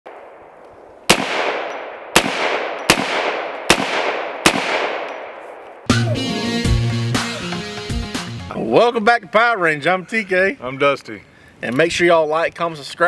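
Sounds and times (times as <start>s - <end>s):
rifle shots with echo: 0.1s - 5.8s
intro music with a beat: 5.9s - 8.5s.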